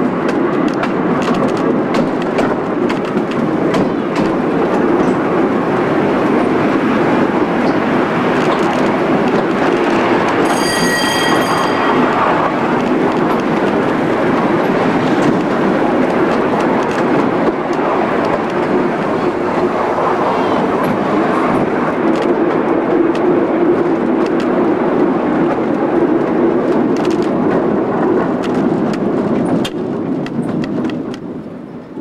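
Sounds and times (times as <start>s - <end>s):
wheels rumbling on rail track: 0.0s - 32.0s
high squeal: 10.4s - 12.7s.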